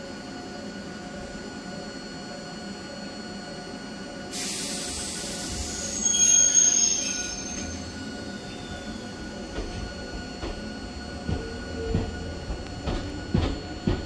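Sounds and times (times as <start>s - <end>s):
train wheel squeal: 4.3s - 14.0s.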